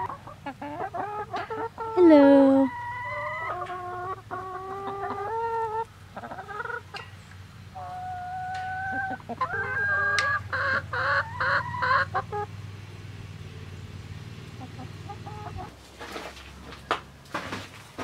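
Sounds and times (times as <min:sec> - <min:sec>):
hens squawking: 0:00.0 - 0:07.0, 0:07.7 - 0:12.5, 0:14.6 - 0:15.8
faint hen clucks: 0:00.0 - 0:07.1, 0:07.7 - 0:12.5, 0:14.5 - 0:15.7.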